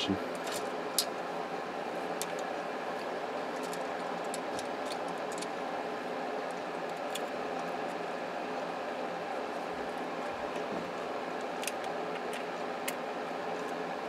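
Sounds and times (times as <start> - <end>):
steady background hum: 0.0 - 14.0
plastic parts clicking: 3.6 - 5.5.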